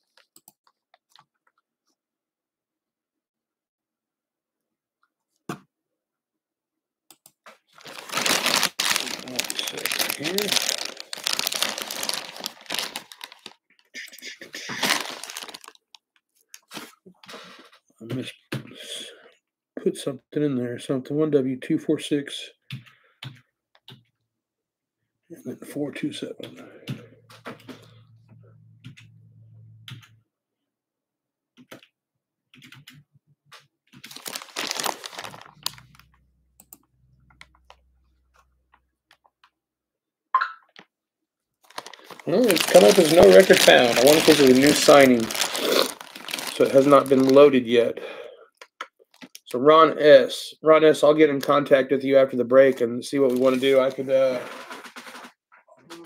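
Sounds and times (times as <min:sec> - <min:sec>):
plastic wrap rustling: 0:07.7 - 0:13.6, 0:14.6 - 0:16.0, 0:34.0 - 0:36.1, 0:41.6 - 0:47.7, 0:53.1 - 0:55.4
plastic bag crinkling: 0:07.8 - 0:13.6, 0:14.6 - 0:16.0, 0:34.0 - 0:36.1, 0:41.6 - 0:47.7, 0:53.1 - 0:55.3.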